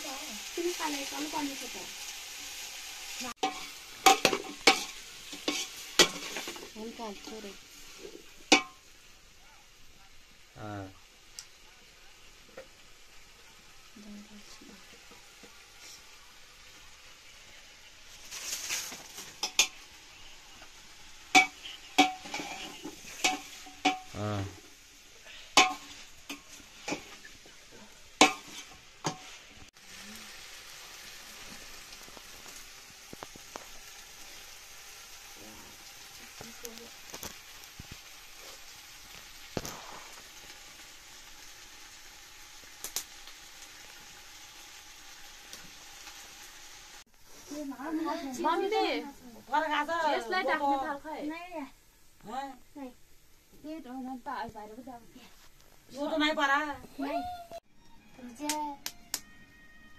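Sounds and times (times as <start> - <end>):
potatoes sizzling in a pot: 0.0 - 59.9
metal ladle stirring in pot: 21.3 - 24.1.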